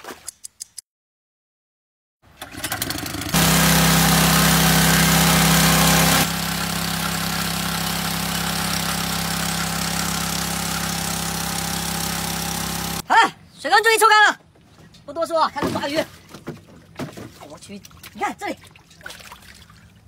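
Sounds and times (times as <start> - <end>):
water pump engine running: 2.3 - 13.0.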